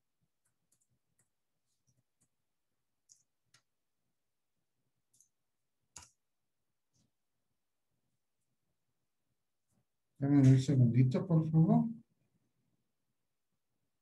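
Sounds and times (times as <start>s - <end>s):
keyboard and mouse clicks: 0.3s - 2.4s, 3.0s - 3.8s, 5.1s - 6.2s.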